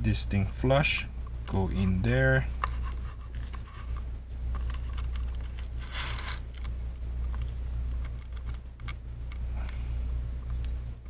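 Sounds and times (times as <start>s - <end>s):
steady low hum: 0.0s - 11.0s
gloved hands rustling: 1.6s - 8.6s.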